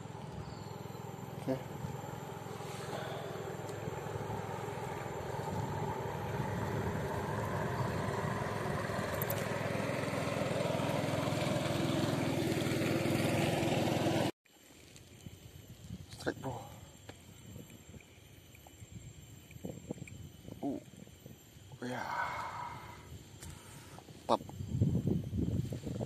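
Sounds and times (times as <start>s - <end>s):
small boat engine running: 0.0s - 14.3s.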